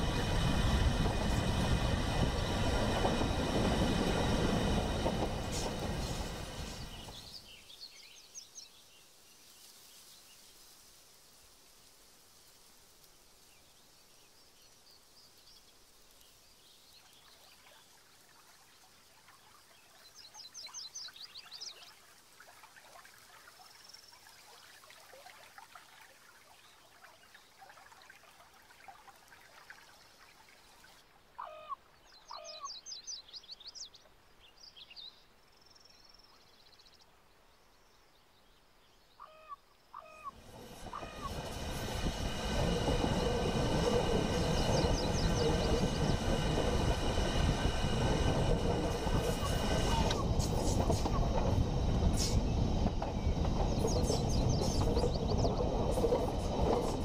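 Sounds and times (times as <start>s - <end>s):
train: 0.0s - 8.8s, 11.6s - 21.9s, 40.0s - 57.0s
high trilled bird calls: 31.4s - 33.0s, 39.2s - 41.5s.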